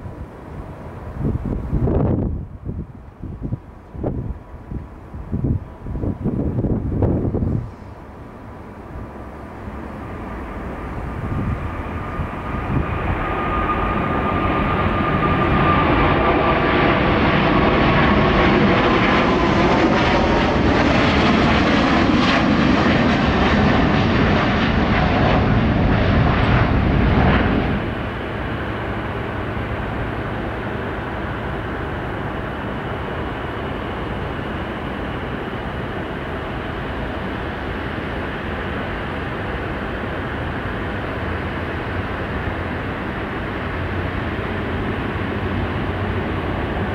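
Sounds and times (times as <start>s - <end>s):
jet engines at takeoff power: 0.0s - 46.9s
steady jet engine noise: 0.0s - 46.9s
falling jet whine: 5.8s - 46.9s.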